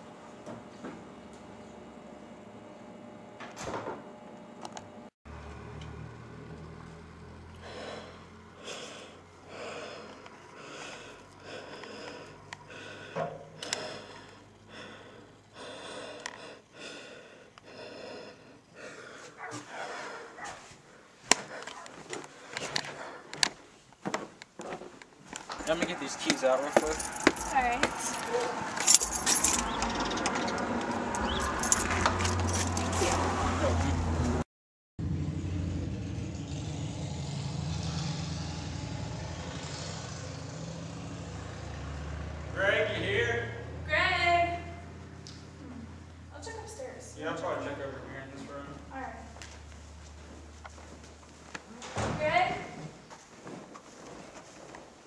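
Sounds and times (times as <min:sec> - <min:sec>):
person breathing heavily: 0:07.5 - 0:23.5.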